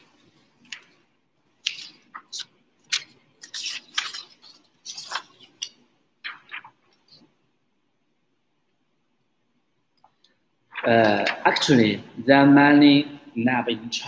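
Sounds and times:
paper rustling and crackling: 0.0 - 7.3, 10.7 - 11.8.

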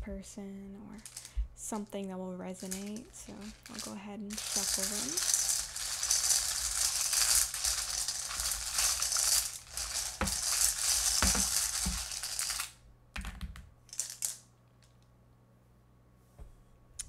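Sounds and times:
tiles rattling in metal bowl: 0.9 - 1.4, 2.6 - 12.7, 13.9 - 14.4
tiles clacking onto table: 2.7 - 15.0.

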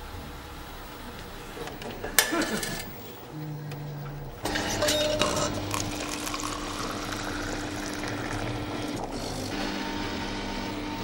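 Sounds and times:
vending machine humming: 0.0 - 11.0
coffee pouring into cup: 4.4 - 10.0.

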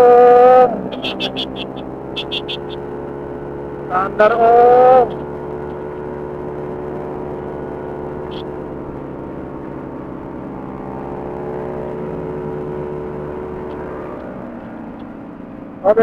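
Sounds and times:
scooter engine running: 0.0 - 16.0
wind and road noise: 0.0 - 16.0
short high chirp: 1.0 - 2.8.

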